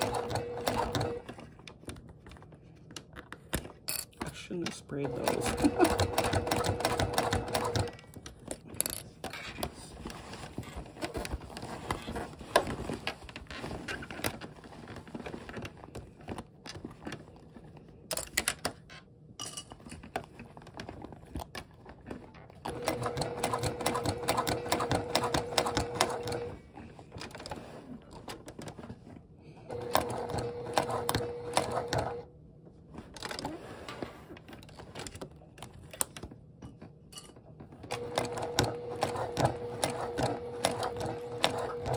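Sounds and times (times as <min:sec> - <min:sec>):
sewing machine stitching: 0:00.0 - 0:01.4, 0:04.9 - 0:08.2, 0:22.7 - 0:26.6, 0:29.7 - 0:32.3, 0:37.9 - 0:41.9.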